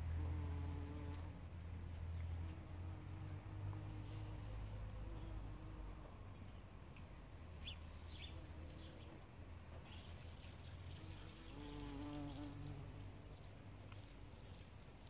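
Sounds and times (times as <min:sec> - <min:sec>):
bumblebee buzzing: 0:00.0 - 0:01.4, 0:10.8 - 0:14.3.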